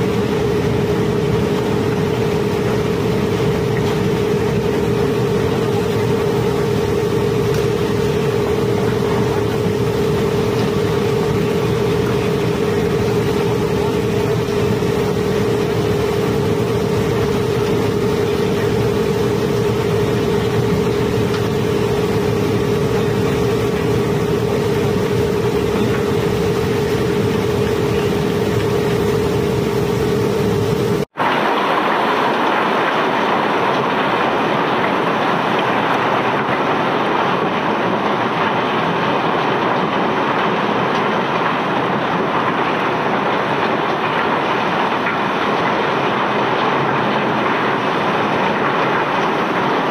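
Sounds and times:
machinery hum: 0:00.0 - 0:49.9.

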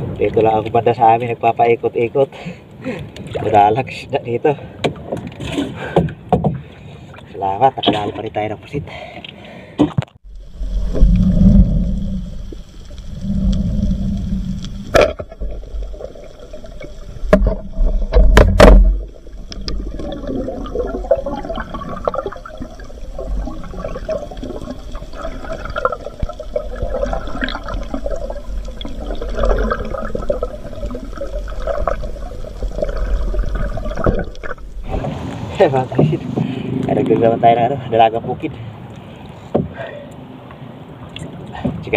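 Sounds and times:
low rumble: 0:00.0 - 0:01.0, 0:10.2 - 0:37.4
dense crackling: 0:10.2 - 0:36.2
underwater rushing bubbling water: 0:10.2 - 0:36.4
sharp knocks: 0:17.3 - 0:19.0.

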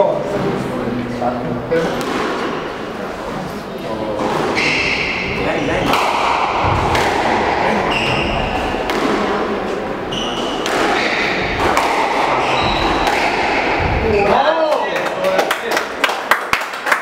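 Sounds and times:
shoes squeaking on wooden floor: 0:04.2 - 0:05.9, 0:07.7 - 0:08.9, 0:09.6 - 0:14.5
squash ball smacking off rackets: 0:05.8 - 0:07.6, 0:08.6 - 0:09.6, 0:10.3 - 0:14.0
ball thudding against walls: 0:05.8 - 0:09.5, 0:10.4 - 0:14.2.

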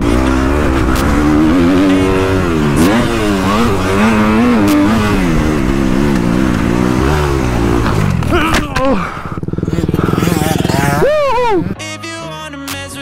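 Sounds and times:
motocross bike engine revving: 0:00.0 - 0:11.8.

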